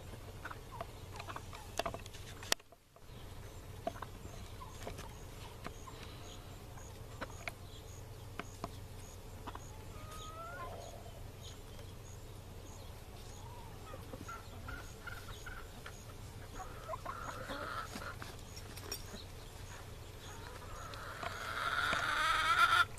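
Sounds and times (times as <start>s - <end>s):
chickens clucking: 0.0s - 22.9s
low steady rumble: 0.0s - 22.9s
chicken rising call: 9.8s - 11.1s, 20.3s - 22.9s.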